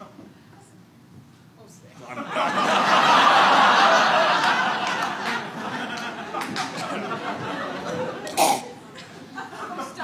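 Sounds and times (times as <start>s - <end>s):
audience laughing: 2.1s - 10.0s.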